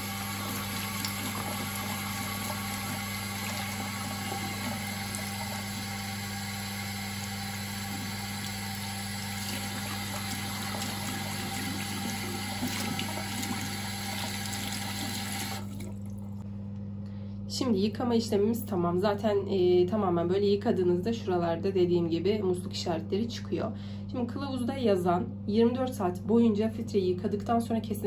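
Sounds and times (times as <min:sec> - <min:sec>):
tap water running into sink: 0:00.0 - 0:16.2
extractor fan humming: 0:00.0 - 0:17.3.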